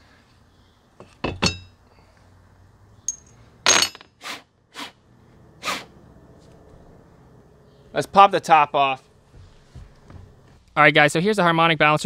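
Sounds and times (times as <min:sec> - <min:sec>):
metal tools clinking: 0:01.0 - 0:01.8, 0:03.1 - 0:04.1.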